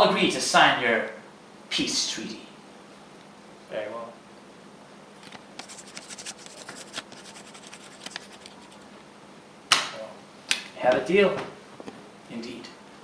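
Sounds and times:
pen scratching on paper: 0:05.6 - 0:08.8.

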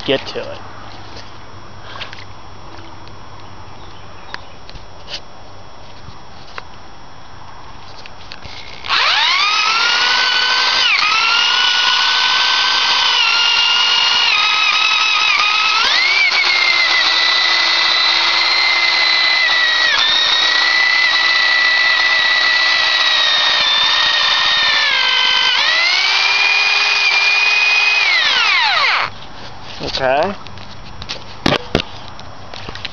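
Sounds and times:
electric motor whining: 0:08.4 - 0:29.2.

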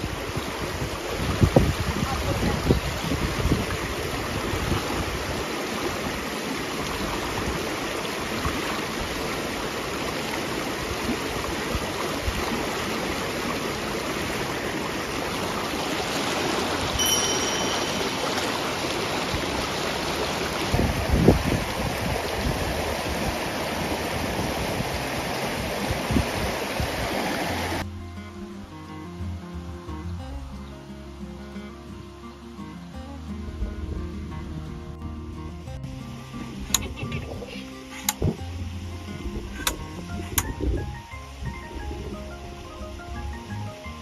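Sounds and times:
river water rushing over step: 0:00.0 - 0:27.9.

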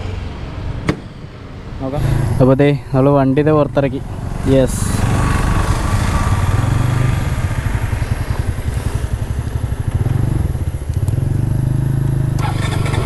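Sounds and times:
motorbike engine at low revs: 0:04.2 - 0:13.0.

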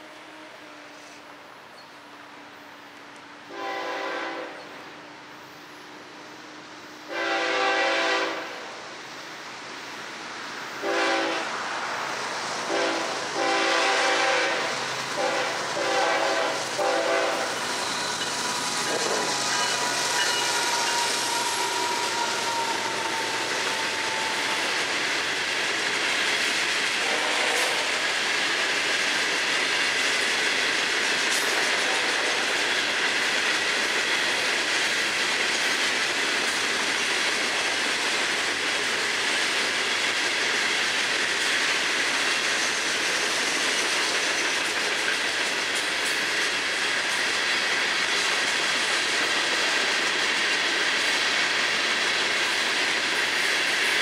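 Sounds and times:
train horn blasts: 0:03.5 - 0:04.8, 0:07.1 - 0:08.7, 0:10.8 - 0:11.5, 0:12.7 - 0:17.6, 0:20.2 - 0:24.7, 0:27.0 - 0:28.0, 0:31.7 - 0:32.6
train wheels clattering over rail joints: 0:12.7 - 0:54.0.

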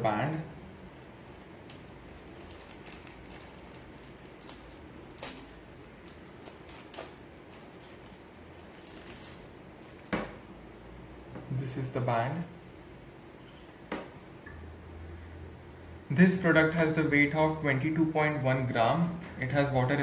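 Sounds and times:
plastic pouch crinkling: 0:00.2 - 0:10.4.

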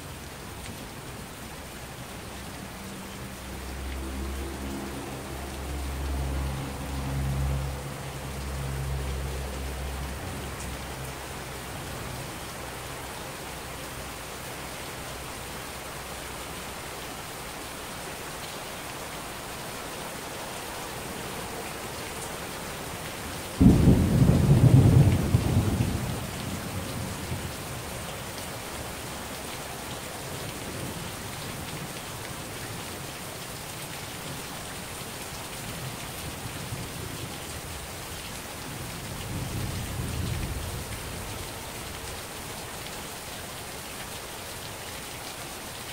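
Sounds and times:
heavy rain falling: 0:00.0 - 0:45.9
thunder clap rumbling: 0:23.6 - 0:26.5
low rumble of thunder: 0:23.6 - 0:27.6.

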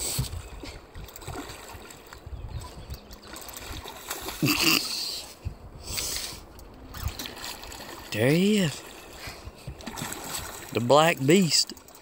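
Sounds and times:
fish splashing at water surface: 0:09.0 - 0:10.7.

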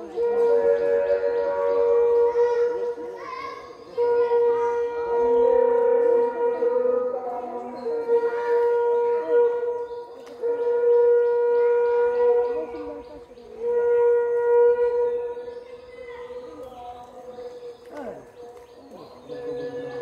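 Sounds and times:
wind instrument long note: 0:00.0 - 0:16.0.

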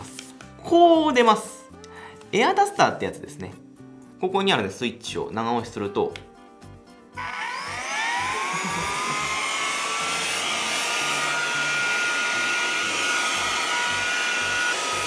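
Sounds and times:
air duster motor whine: 0:07.2 - 0:15.0.

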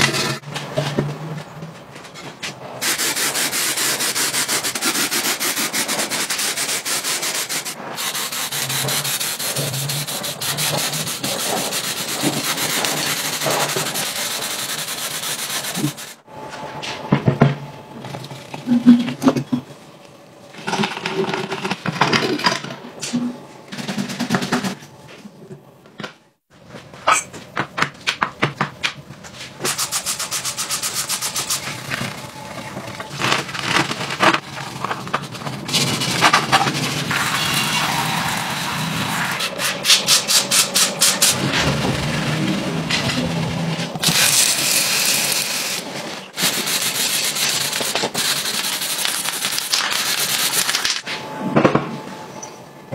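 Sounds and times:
stiff brush scrubbing: 0:02.8 - 0:16.2, 0:46.4 - 0:50.8.

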